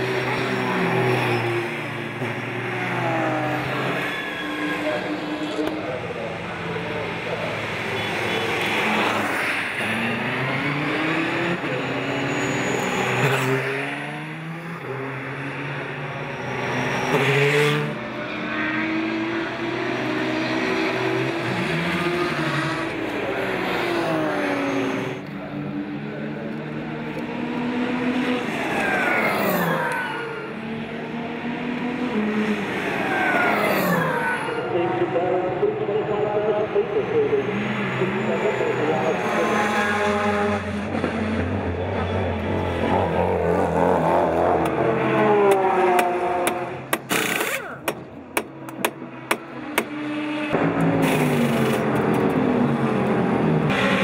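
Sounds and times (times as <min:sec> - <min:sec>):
race car engine: 0:00.0 - 0:54.0
pneumatic wheel gun burst: 0:47.0 - 0:47.8.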